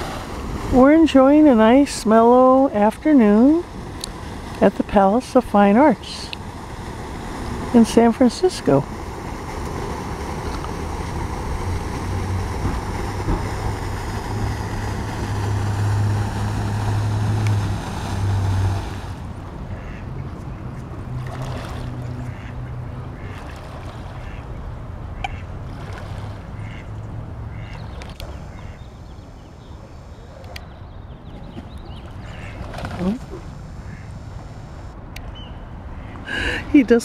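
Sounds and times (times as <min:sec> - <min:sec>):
lapping water: 0:00.0 - 0:29.0, 0:36.0 - 0:37.0
fountain spray: 0:00.0 - 0:30.7, 0:32.2 - 0:35.0, 0:35.8 - 0:37.0
wind rumbling on microphone: 0:00.0 - 0:37.0
duck and goose calls: 0:19.7 - 0:20.5, 0:22.1 - 0:24.5, 0:25.2 - 0:25.5, 0:26.6 - 0:26.9, 0:27.5 - 0:27.8, 0:32.2 - 0:33.2, 0:33.8 - 0:34.2.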